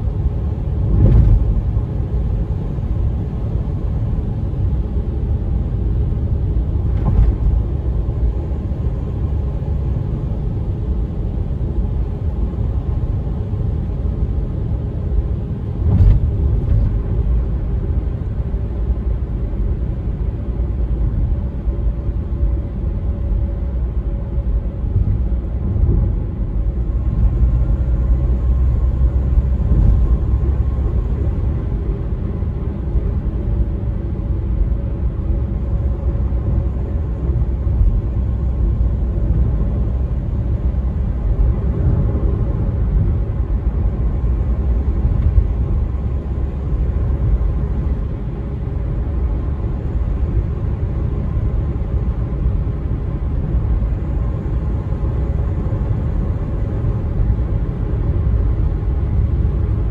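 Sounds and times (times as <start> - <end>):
car tyres and engine rumble: 0.0 - 59.9.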